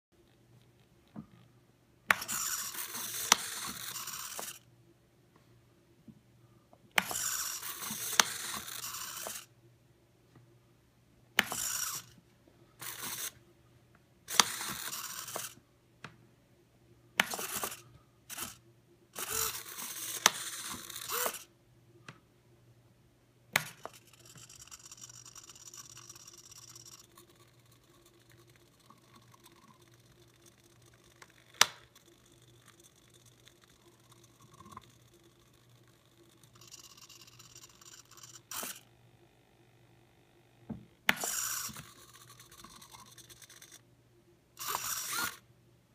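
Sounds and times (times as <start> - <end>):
small servo motors whirring: 2.1 - 4.6, 7.0 - 9.5, 11.4 - 12.2, 12.8 - 13.4, 14.3 - 15.6, 17.2 - 18.6, 19.2 - 21.5, 23.6 - 39.0, 41.1 - 43.8, 44.6 - 45.4.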